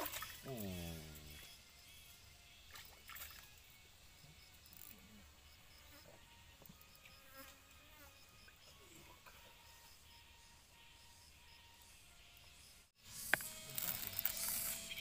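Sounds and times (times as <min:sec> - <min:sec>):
insects chirping: 0:00.0 - 0:15.0.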